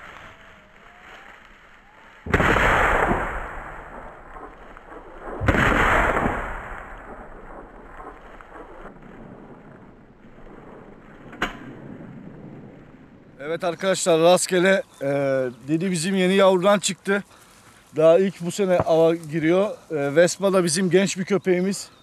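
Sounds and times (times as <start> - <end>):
shotgun shots with echo: 2.3 - 9.0.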